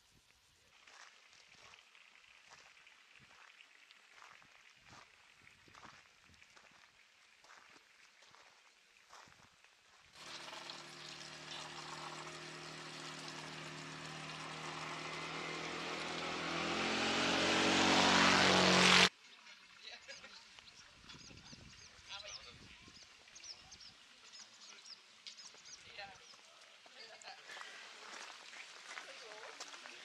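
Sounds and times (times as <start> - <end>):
motor engine droning: 10.2 - 19.1.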